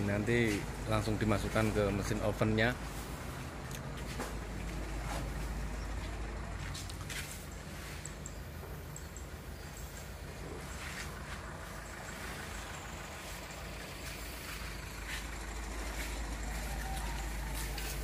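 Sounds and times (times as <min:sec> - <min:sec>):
engine humming: 0:00.0 - 0:18.0.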